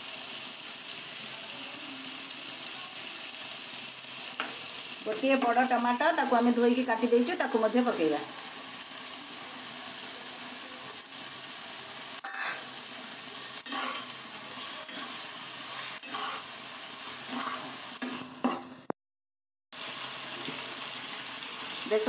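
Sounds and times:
tomato sizzling in paste: 0:00.0 - 0:18.6, 0:19.8 - 0:22.0
spatula scraping and stirring: 0:12.2 - 0:12.8, 0:13.6 - 0:18.7.

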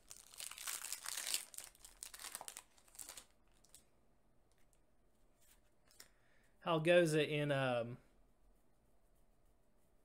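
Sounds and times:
foil wrapper crinkling: 0:00.0 - 0:03.8.

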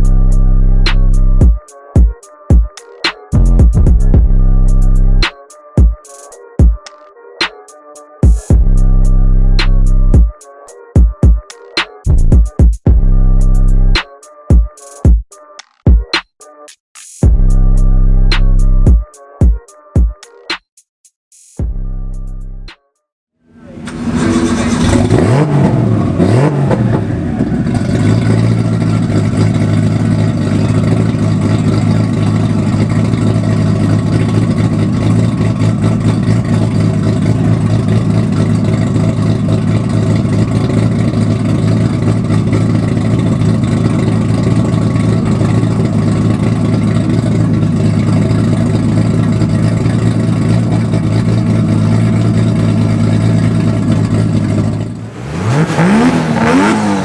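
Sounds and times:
car engine revving and idling: 0:00.0 - 0:01.4, 0:03.4 - 0:05.3, 0:08.5 - 0:10.2, 0:12.9 - 0:14.0, 0:23.5 - 0:57.0.

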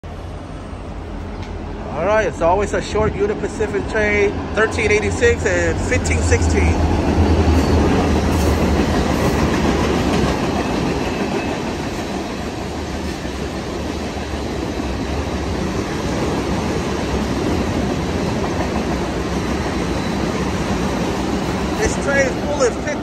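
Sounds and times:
diesel locomotive rumble: 0:00.0 - 0:23.0
train wheels clattering on rails: 0:06.6 - 0:22.8.

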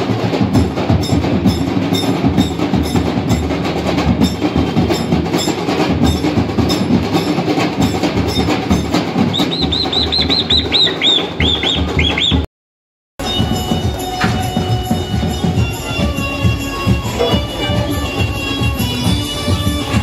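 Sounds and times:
percussion music with fast drums: 0:00.0 - 0:12.5, 0:13.2 - 0:20.0
quick high chirps: 0:09.2 - 0:12.5.

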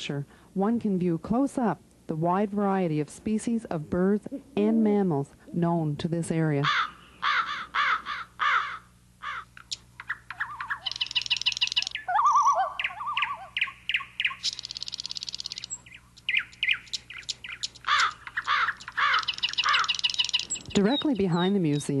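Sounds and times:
faint low hum: 0:00.0 - 0:22.0
harsh bird calls: 0:06.6 - 0:22.0
buzzy bird rattle: 0:09.6 - 0:12.0, 0:14.4 - 0:21.0
fast bird trill: 0:10.0 - 0:22.0
slurred bird whistles: 0:10.4 - 0:16.8.

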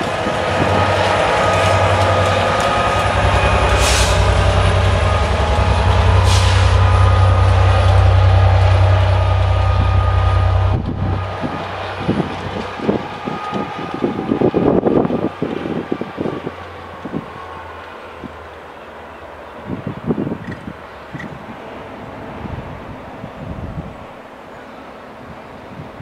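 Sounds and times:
train wheels running: 0:00.0 - 0:18.1
diesel locomotive engine drone: 0:00.0 - 0:26.0
uneven train rumble: 0:00.0 - 0:26.0.

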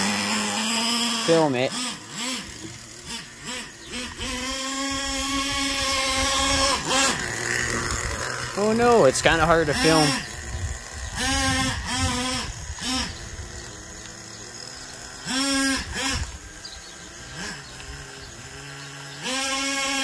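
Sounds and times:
small engine revving: 0:00.0 - 0:20.0
person talking: 0:01.1 - 0:01.9, 0:08.5 - 0:10.3.

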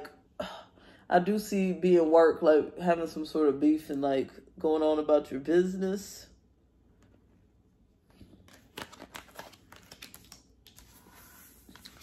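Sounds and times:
cards clicking and tapping: 0:08.5 - 0:11.0.

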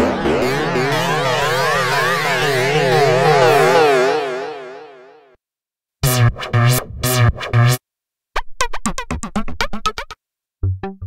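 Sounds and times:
pulsing synth bass pattern: 0:00.0 - 0:05.1, 0:06.0 - 0:07.8, 0:10.6 - 0:11.0
rhythmic synth pattern: 0:00.0 - 0:05.1, 0:06.0 - 0:07.8.

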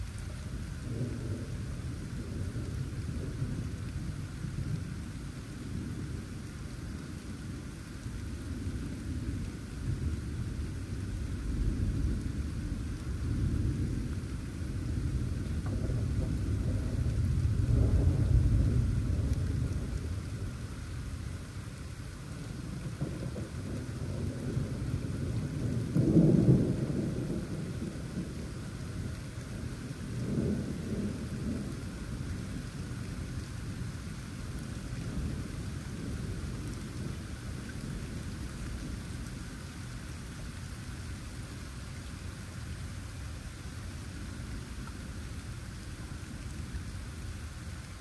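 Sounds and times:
steady rain: 0:00.0 - 0:48.0
rolling thunder: 0:08.6 - 0:21.1, 0:22.6 - 0:33.3.

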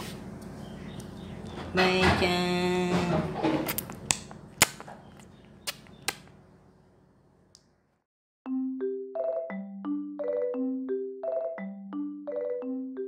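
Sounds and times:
sharp clicks and snaps: 0:03.7 - 0:06.3
marimba-like music: 0:08.5 - 0:13.0.

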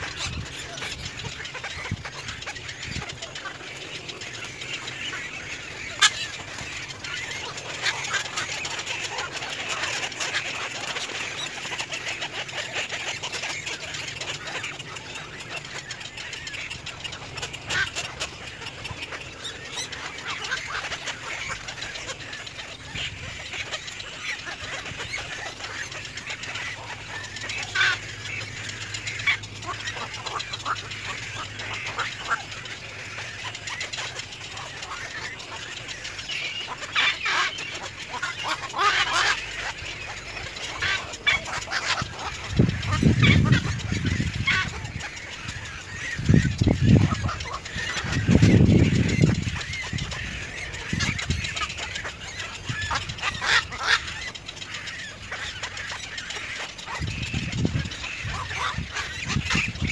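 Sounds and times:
bird squawks: 0:00.0 - 0:59.9
birds chattering: 0:00.0 - 0:59.9.

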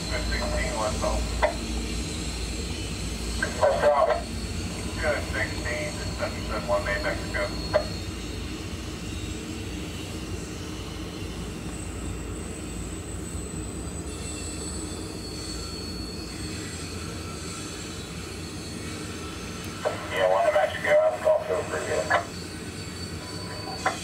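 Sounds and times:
freight train rumbling: 0:00.0 - 0:24.0
high-pitched wheel squeal: 0:14.0 - 0:19.5, 0:22.2 - 0:24.0.

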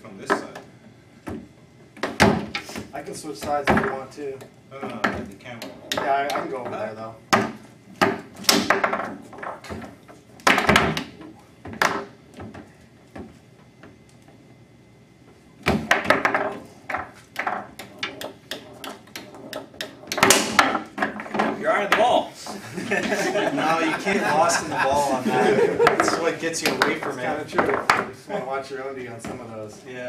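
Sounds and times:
foosball ball clacks and knocks: 0:00.2 - 0:14.0, 0:15.7 - 0:22.2, 0:25.8 - 0:28.2.

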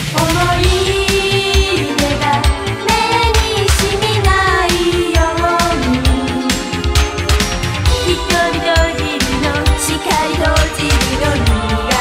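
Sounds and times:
women singing pop song: 0:00.0 - 0:06.7, 0:07.9 - 0:12.0
pop band with drum beat: 0:00.0 - 0:12.0.

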